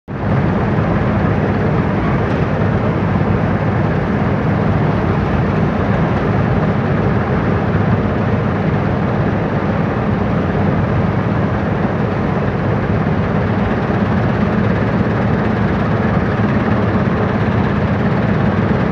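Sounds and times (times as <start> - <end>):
combine harvester running: 0.1 - 18.9.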